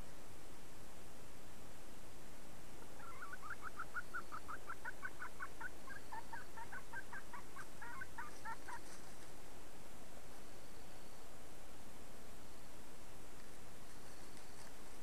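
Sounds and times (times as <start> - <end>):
hen clucking: 3.0 - 9.0.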